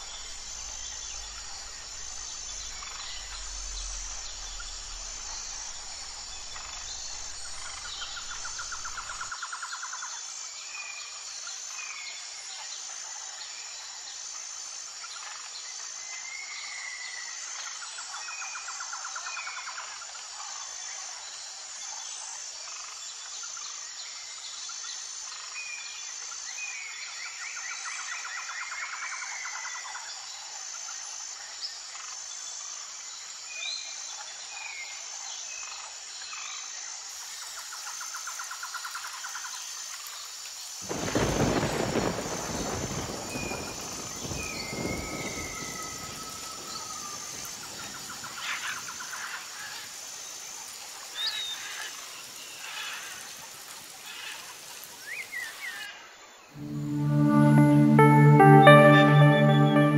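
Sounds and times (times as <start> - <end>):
loud low rumble: 0.0 - 9.2.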